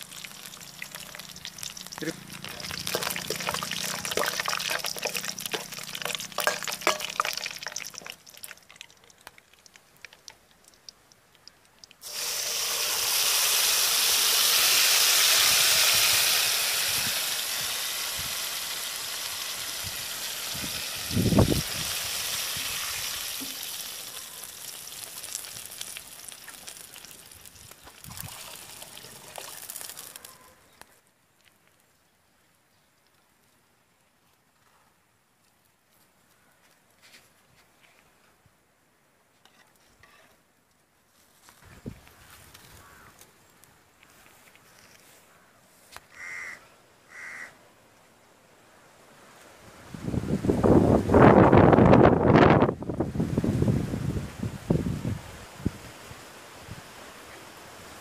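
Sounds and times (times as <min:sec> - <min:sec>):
metal ladle scraping pot: 0:02.4 - 0:08.1
liquid hissing in hot pot: 0:12.0 - 0:30.2.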